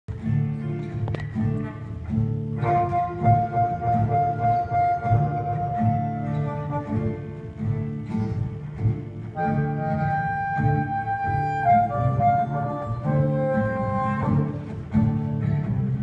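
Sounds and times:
acoustic guitars strumming: 0.1 - 16.0
harmonica long held notes: 2.6 - 8.0, 9.3 - 15.4.

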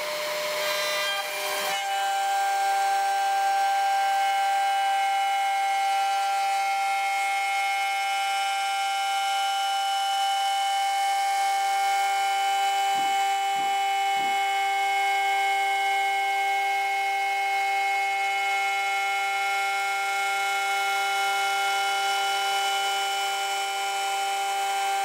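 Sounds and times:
harsh metal cutting noise: 0.0 - 8.8
router spindle high whine: 0.0 - 25.0.

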